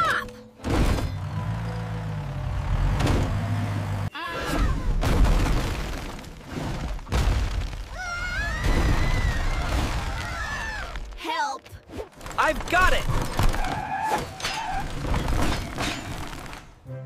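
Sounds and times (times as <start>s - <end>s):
truck engine rumbling: 0.4s - 4.1s.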